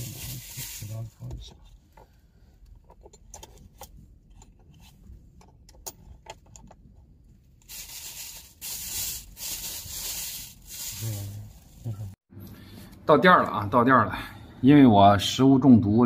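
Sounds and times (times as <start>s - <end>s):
plastic bag crinkling: 7.6s - 11.6s.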